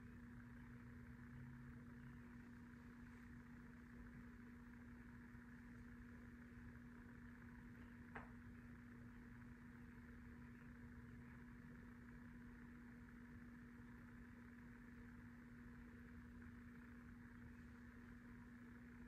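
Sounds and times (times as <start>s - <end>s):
faint constant hum: 0.0s - 19.0s.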